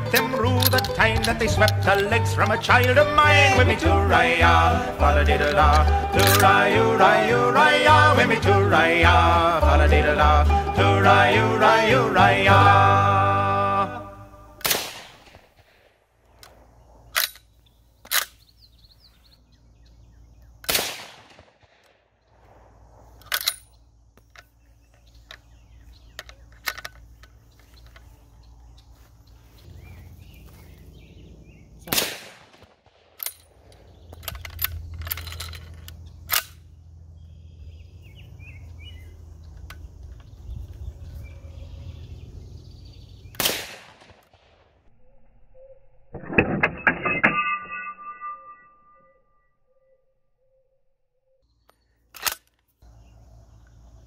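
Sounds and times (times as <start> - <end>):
rifle bolt clacks: 0.0 - 3.1, 5.4 - 6.6, 17.2 - 18.4, 23.2 - 25.5, 26.1 - 28.1, 32.6 - 36.6, 52.1 - 52.8
rifle shots: 14.6 - 16.0, 20.7 - 22.6, 31.9 - 33.9, 43.4 - 44.8.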